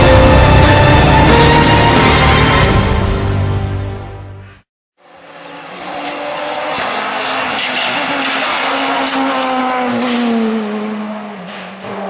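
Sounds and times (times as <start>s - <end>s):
rally car engine at high revs: 5.0s - 12.0s.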